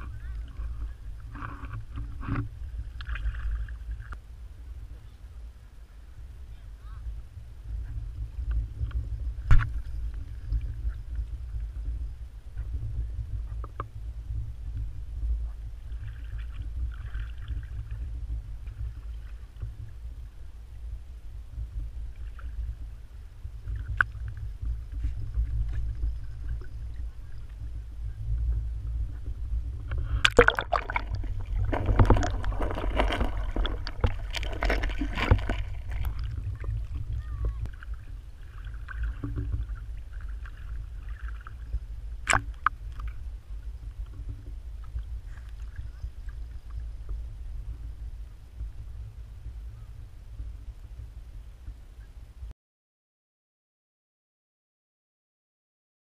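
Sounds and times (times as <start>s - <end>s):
water splashing: 0.0s - 4.2s, 15.8s - 19.9s, 29.9s - 43.3s
water sloshing and gurgling: 0.0s - 51.8s
low rumble: 0.0s - 52.5s.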